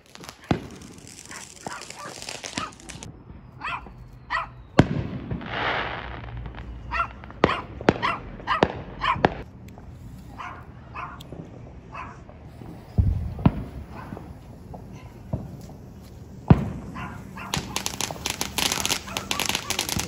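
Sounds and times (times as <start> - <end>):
fireworks banging: 0.0 - 3.1, 3.8 - 20.0
dog barking: 1.3 - 2.8, 3.6 - 4.6, 6.9 - 9.3, 10.4 - 11.2, 11.9 - 12.2, 16.9 - 17.8, 18.8 - 20.0.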